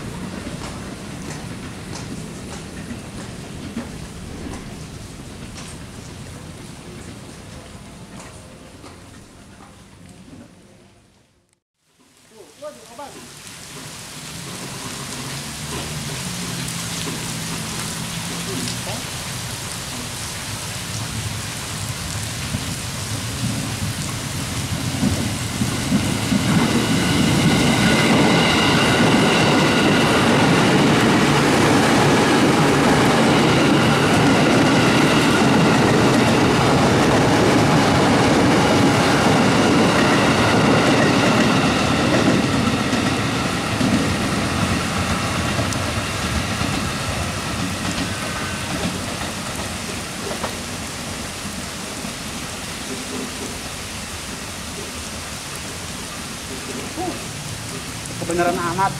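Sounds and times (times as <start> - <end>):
electric train passing: 0.0 - 9.4, 13.7 - 58.9
heavy rain: 0.0 - 58.9
high train whine: 13.8 - 58.9.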